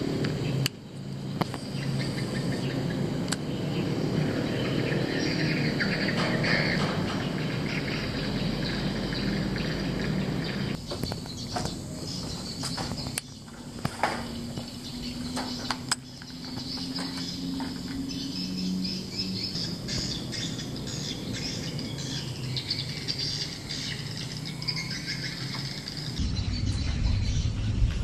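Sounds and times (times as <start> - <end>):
birds or insects chirping: 0.0 - 27.9
low rumble: 26.2 - 28.0.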